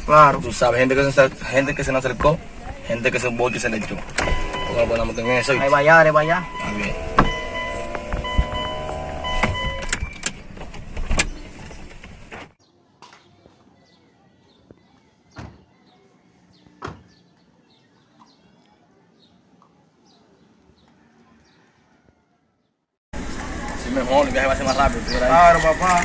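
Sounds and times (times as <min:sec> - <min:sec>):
car door shutting: 0:03.9 - 0:12.4
steady tones: 0:04.0 - 0:10.0
car engine running in cabin: 0:04.1 - 0:12.0.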